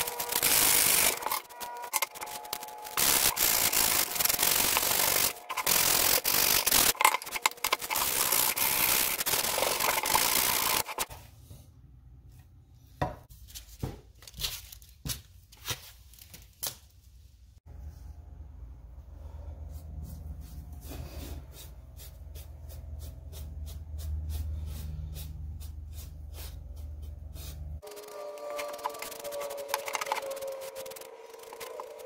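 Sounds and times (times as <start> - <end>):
sandpaper rubbing wood: 7.8 - 11.1, 20.2 - 32.0.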